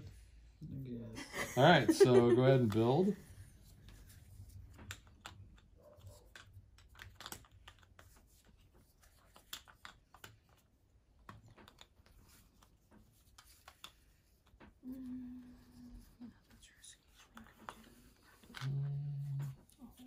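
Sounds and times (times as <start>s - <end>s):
game pieces clicking on board: 4.6s - 14.8s.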